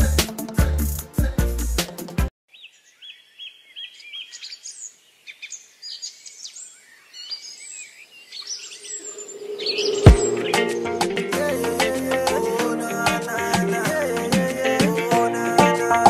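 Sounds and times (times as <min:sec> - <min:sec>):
music: 0:00.0 - 0:02.3, 0:10.1 - 0:16.0
birds chirping and calling: 0:02.5 - 0:13.3
low drone: 0:08.8 - 0:13.0
sharp loud hit: 0:09.0 - 0:12.2.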